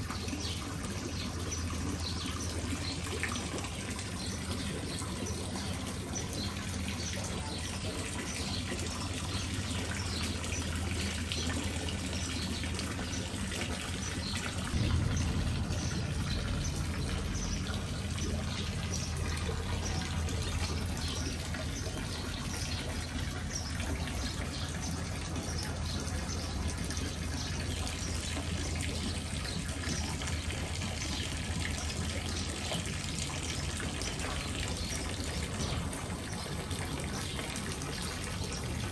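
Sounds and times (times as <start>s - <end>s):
water splashing into pond: 0.0s - 38.9s
low hum: 9.8s - 23.4s.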